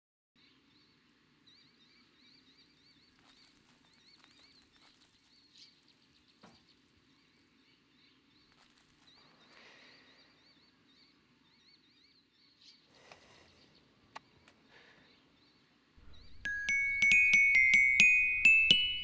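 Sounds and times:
high wavering chirp: 16.0s - 19.0s.

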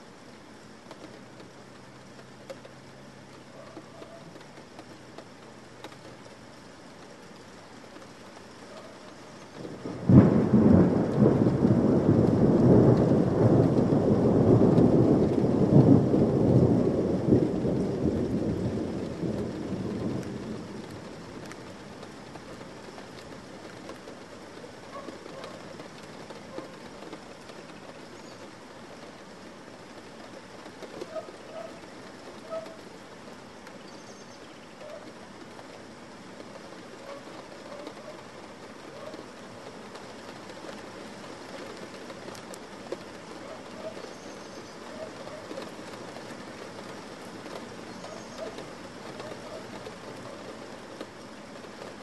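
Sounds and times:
steady rain: 0.0s - 52.0s
thunder rumbling: 8.7s - 28.1s, 36.8s - 51.1s.

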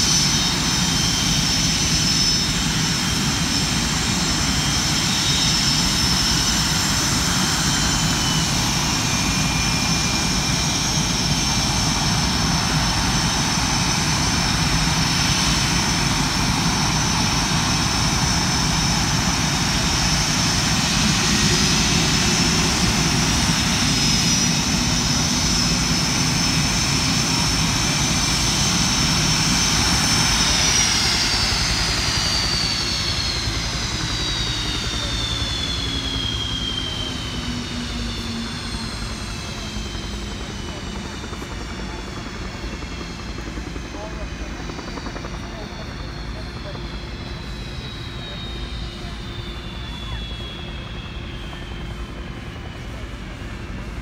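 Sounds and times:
jet engines idling: 0.0s - 54.0s.

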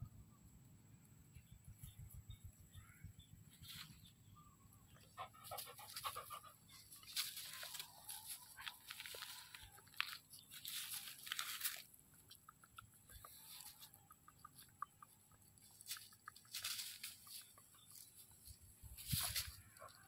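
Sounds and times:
rustling on dry straw: 6.9s - 11.9s, 15.8s - 20.0s.

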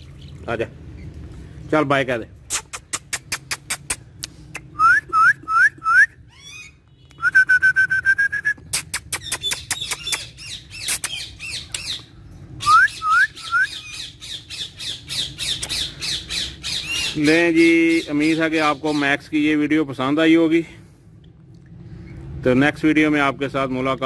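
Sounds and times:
parakeet squawky chatter: 8.8s - 12.1s, 13.8s - 19.0s.

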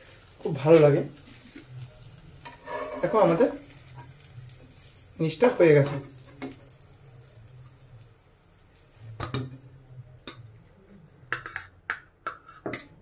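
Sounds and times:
utensils tapping a frying pan: 5.8s - 7.8s, 8.6s - 10.5s, 11.3s - 13.0s.

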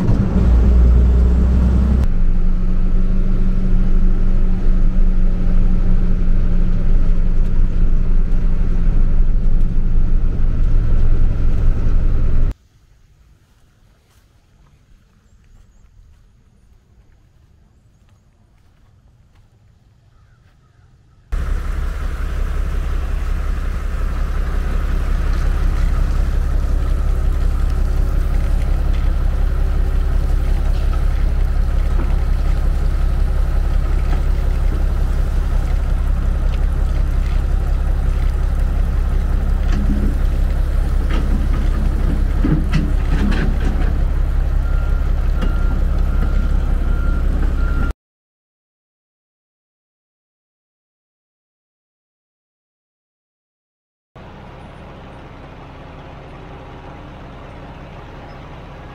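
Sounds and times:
heavy engine rumbling: 0.0s - 12.6s, 21.3s - 47.9s, 54.2s - 58.9s.

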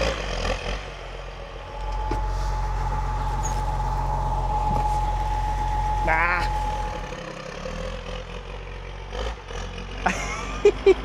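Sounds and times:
tractor diesel engine running: 0.0s - 11.0s
high whine: 1.0s - 8.5s.

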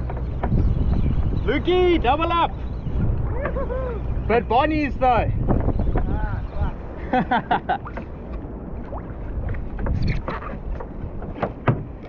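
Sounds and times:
short knocks and clicks: 0.0s - 1.3s, 9.8s - 12.0s
water sloshing against kayak hull: 0.0s - 12.0s
wind on microphone: 0.0s - 12.0s.

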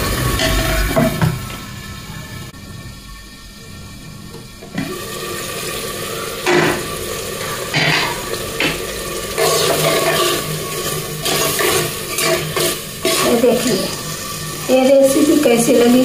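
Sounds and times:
pressure cooker hissing: 0.0s - 16.0s
metal lid clanking: 7.7s - 10.5s
spoon scraping and stirring beans: 9.4s - 13.9s.

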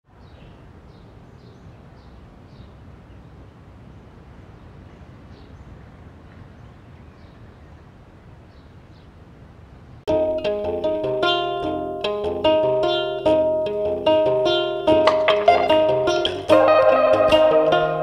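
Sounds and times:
outdoor background noise: 0.0s - 18.0s
guitar playing plucked notes: 10.1s - 18.0s.

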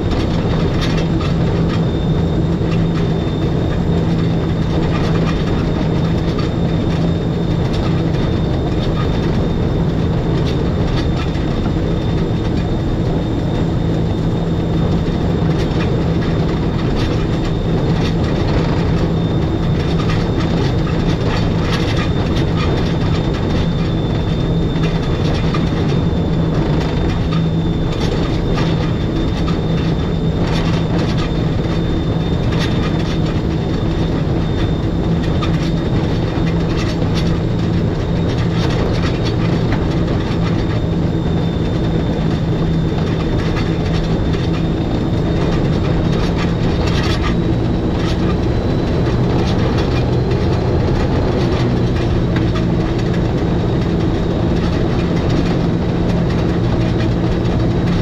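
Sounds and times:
electric train running: 0.0s - 58.0s
low hum with high whine: 0.0s - 58.0s
wheels clicking and knocking: 13.4s - 58.0s.

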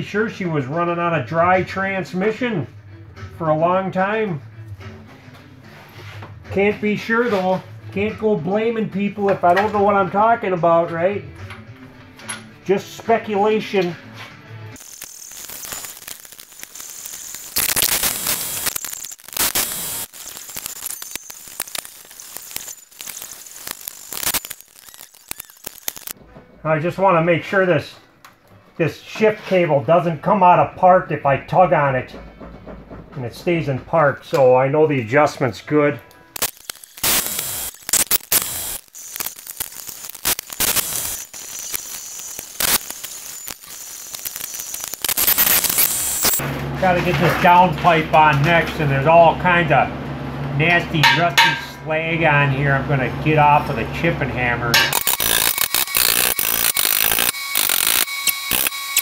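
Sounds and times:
air ratchet bursts: 14.8s - 26.2s, 36.4s - 46.4s, 54.8s - 59.0s
scattered clicks: 14.8s - 26.2s, 36.3s - 46.4s, 54.9s - 59.0s.

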